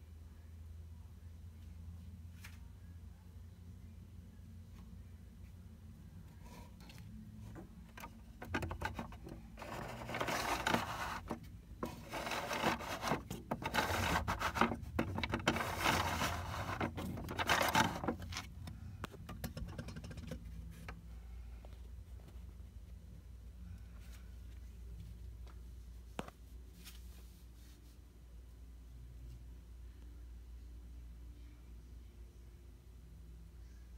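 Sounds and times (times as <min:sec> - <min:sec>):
hard plastic scraping: 0:06.4 - 0:21.0.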